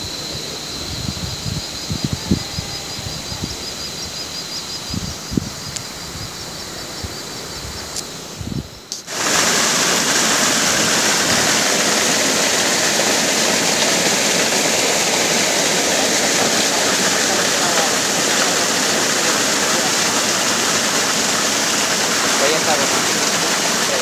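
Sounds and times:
foaming stream rushing: 8.1s - 24.0s.

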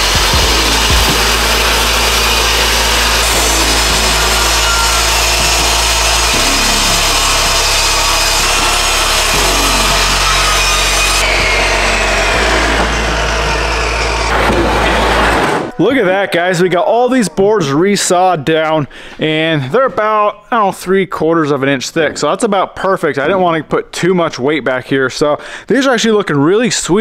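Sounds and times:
table saw cutting wood: 0.0s - 15.8s.

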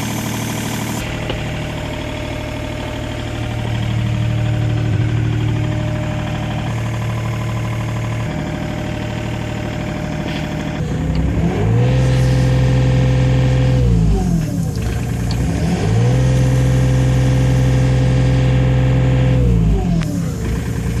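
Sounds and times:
diesel engine revving: 0.0s - 21.0s.

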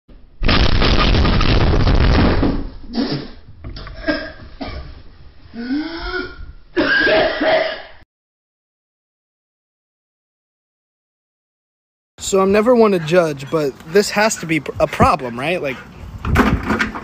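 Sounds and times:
ceiling crashing down: 0.1s - 5.1s
person coughing: 2.9s - 3.4s, 4.0s - 4.9s, 5.6s - 8.0s.

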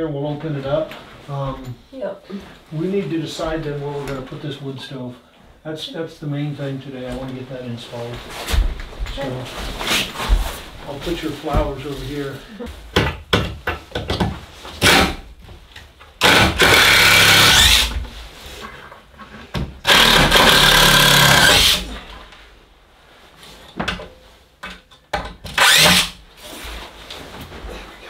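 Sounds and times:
power drill backing out screws: 19.8s - 21.8s.

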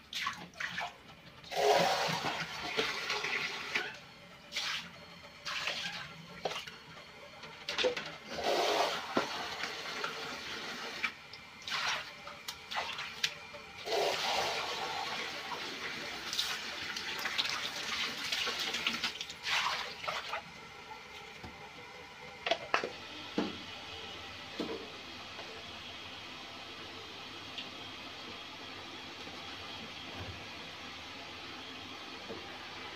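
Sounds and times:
tap water running and splashing: 0.0s - 21.8s.

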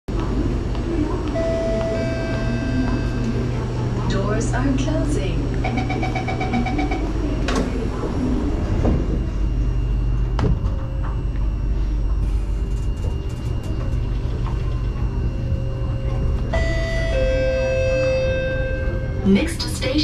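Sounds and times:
train rumble: 0.1s - 20.0s
two-note tone: 16.4s - 19.3s.

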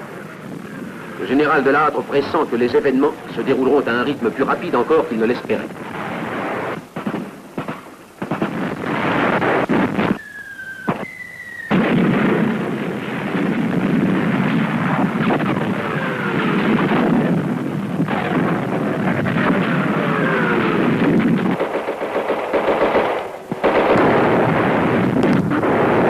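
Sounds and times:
artillery blasts: 0.0s - 10.2s, 10.8s - 26.0s
continuous gunfire: 6.3s - 10.2s, 11.7s - 26.0s
short whistles: 10.0s - 11.8s.

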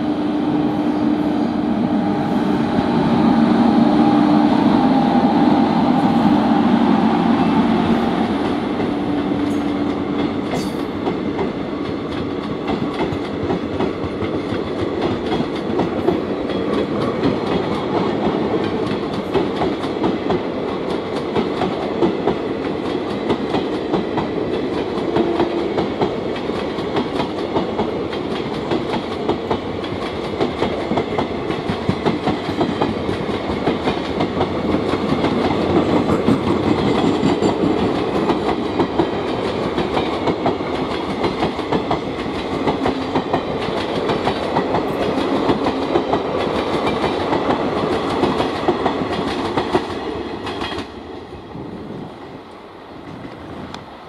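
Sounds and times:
train rumble: 0.0s - 54.0s
train wheels clicking over rail joints: 8.7s - 51.0s.

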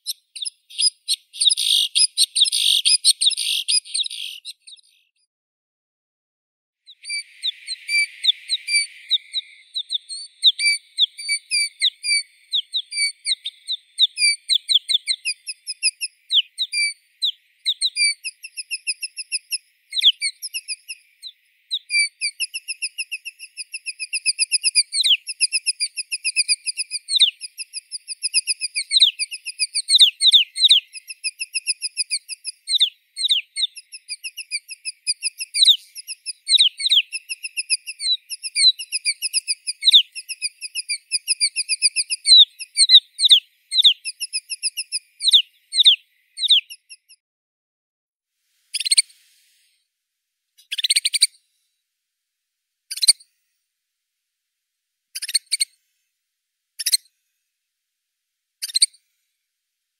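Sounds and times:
bird calling with short high notes: 0.0s - 5.1s, 6.9s - 47.2s.

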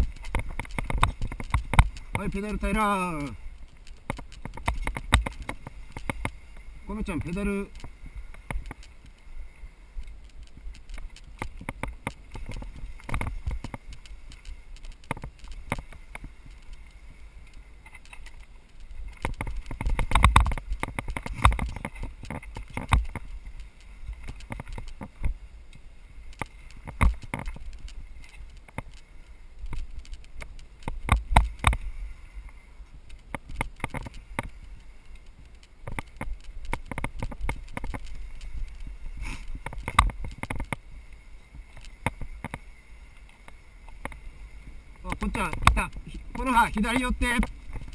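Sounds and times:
bike knocks and rattles: 0.0s - 2.4s, 3.9s - 6.4s, 19.0s - 23.3s
low wind rumble: 0.0s - 47.9s.

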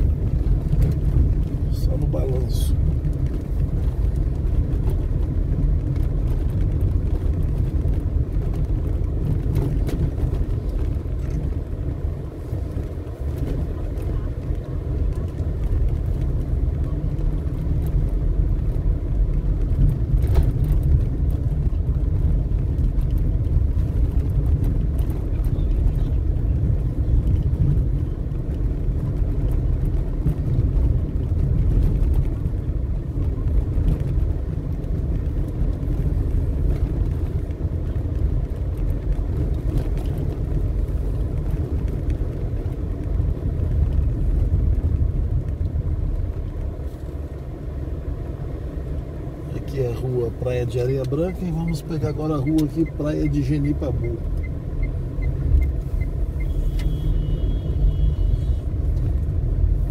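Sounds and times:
car engine and tyres rumbling: 0.0s - 59.9s.

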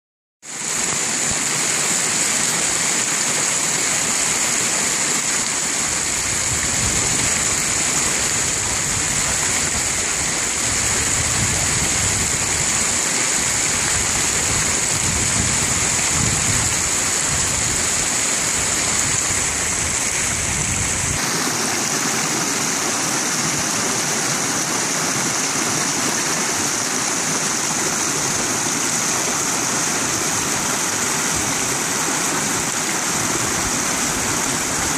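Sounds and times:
creek rushing over rocks: 0.4s - 34.9s
small water cascade: 0.4s - 34.9s.

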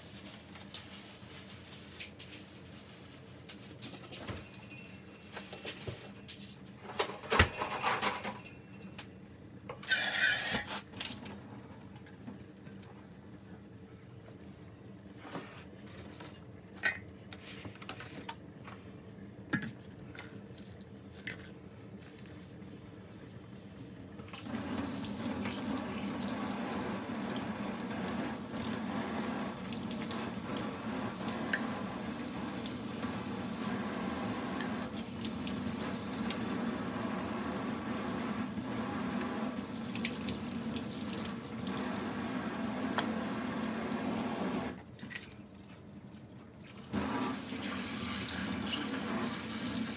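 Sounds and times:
tap water running into sink: 24.4s - 44.8s, 46.9s - 49.9s.

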